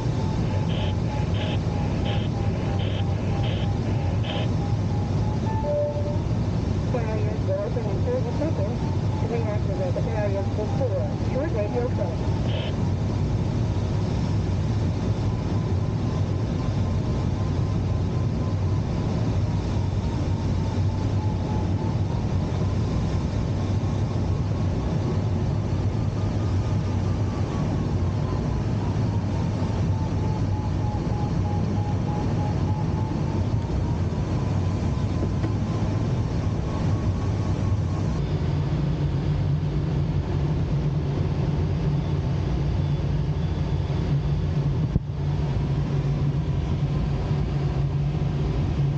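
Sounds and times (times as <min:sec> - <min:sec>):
airflow noise: 0:00.0 - 0:15.1
low engine drone: 0:00.0 - 0:48.9.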